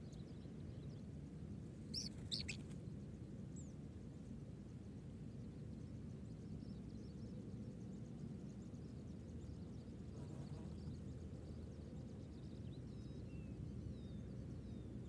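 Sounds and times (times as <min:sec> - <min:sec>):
small birds chirping: 0:01.8 - 0:02.9, 0:08.6 - 0:15.0.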